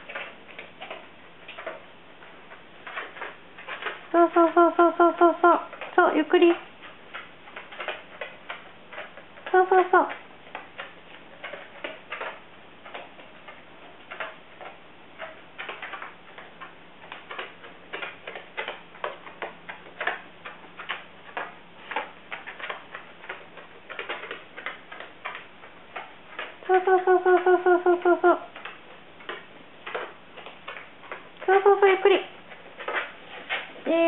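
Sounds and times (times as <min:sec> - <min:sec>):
dog claws ticking on mats: 0:00.0 - 0:34.0
woman's voice: 0:04.1 - 0:06.7, 0:09.5 - 0:10.2, 0:26.7 - 0:28.5, 0:31.4 - 0:32.3.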